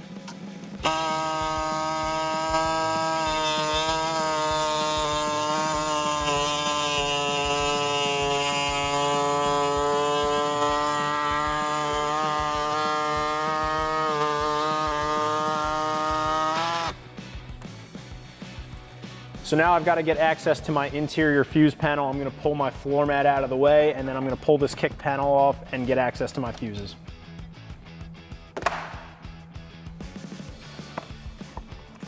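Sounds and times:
drill bit cutting plastic: 0:00.8 - 0:17.0
power tool motor whine: 0:00.8 - 0:17.0.

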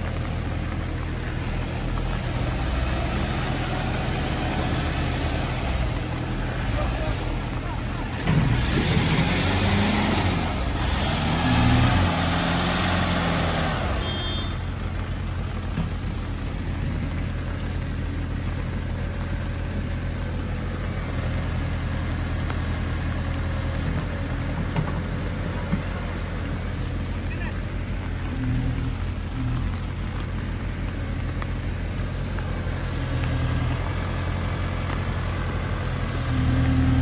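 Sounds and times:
diesel engine revving and idling: 0:00.0 - 0:37.0.

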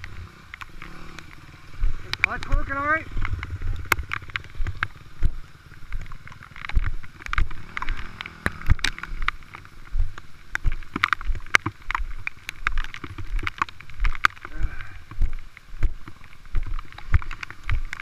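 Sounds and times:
dirt bike engine revving: 0:00.0 - 0:06.5, 0:07.5 - 0:09.9
bike knocking against rocks: 0:00.0 - 0:18.0.

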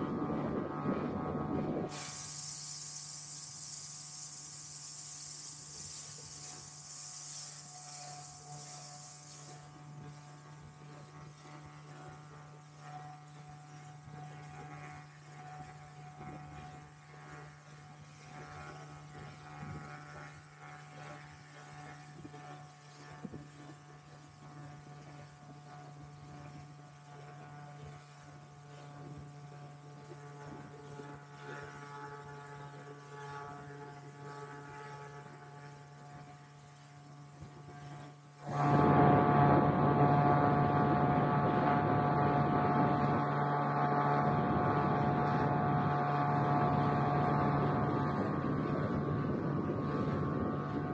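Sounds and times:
motorboat engine humming: 0:00.0 - 0:21.6, 0:27.4 - 0:50.9
dense rushing noise: 0:38.4 - 0:50.9.

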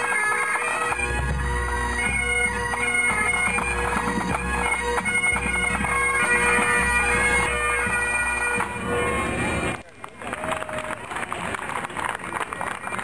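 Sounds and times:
bagpipes playing a tune: 0:00.0 - 0:09.8
side drums beating: 0:00.9 - 0:09.8.

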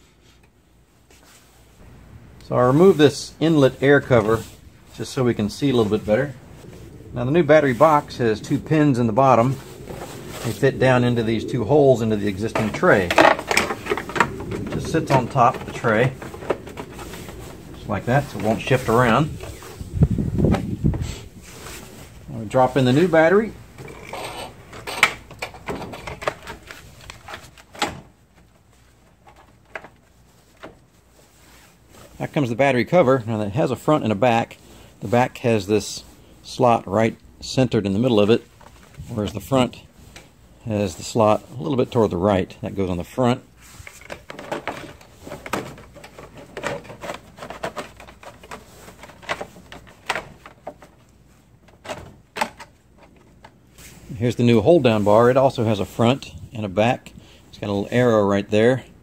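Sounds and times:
plastic case knocking and scraping: 0:12.5 - 0:19.6, 0:44.0 - 0:51.0.

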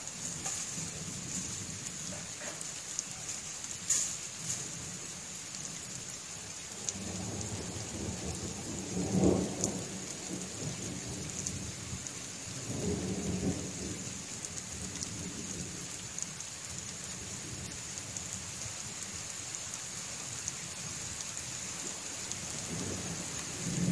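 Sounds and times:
steady rain: 0:00.0 - 0:23.9
rolling thunder: 0:06.8 - 0:14.2, 0:22.5 - 0:23.9.

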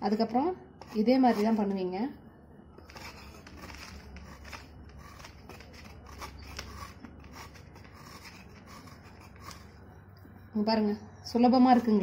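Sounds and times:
jaggery scraping on iron blade: 0:00.8 - 0:01.8, 0:02.8 - 0:10.6.

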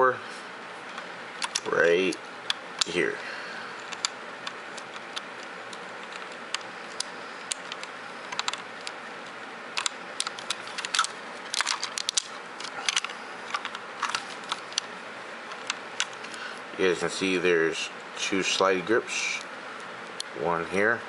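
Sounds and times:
plastic toy parts clicking: 0:01.4 - 0:01.7, 0:09.8 - 0:12.3
steady hiss: 0:12.3 - 0:20.9.

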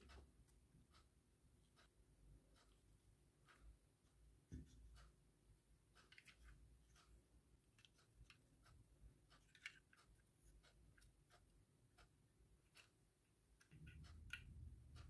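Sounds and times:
small plastic clicks and rustles: 0:06.0 - 0:07.1, 0:07.7 - 0:14.7.

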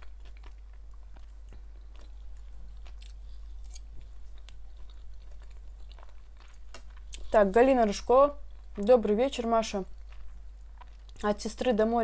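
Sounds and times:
person chewing food: 0:00.0 - 0:07.5, 0:08.4 - 0:08.9, 0:09.8 - 0:11.2.

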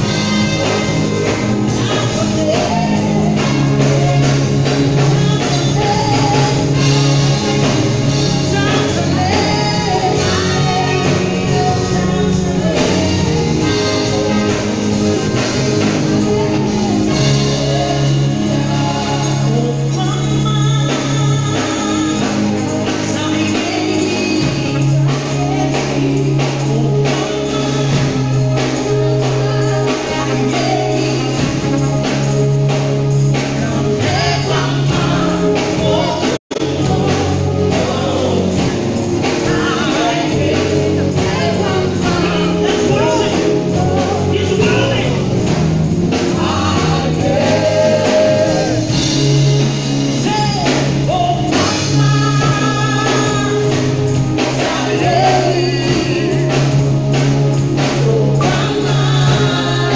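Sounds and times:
woman singing into a microphone: 0:00.0 - 0:07.5, 0:08.2 - 0:14.6, 0:16.3 - 0:31.8, 0:51.5 - 0:56.7, 0:57.9 - 0:59.9
live band with drums: 0:00.0 - 0:59.9.

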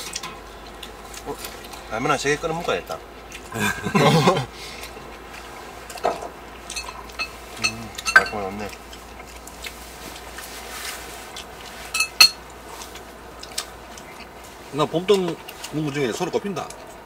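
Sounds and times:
utensils and dishes clinking: 0:05.9 - 0:08.8, 0:11.9 - 0:12.4.

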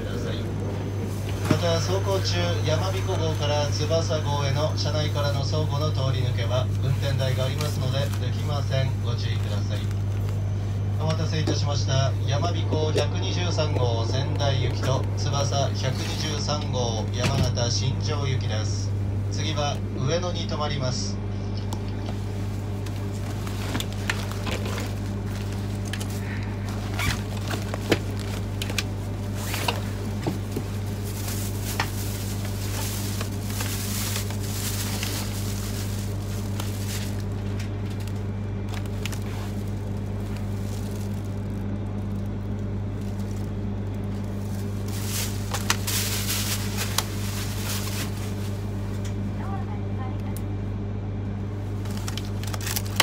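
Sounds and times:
train cabin hum: 0:00.0 - 0:53.0
plastic bag and paper rustling: 0:01.1 - 0:11.7, 0:22.1 - 0:48.9, 0:51.6 - 0:53.0.

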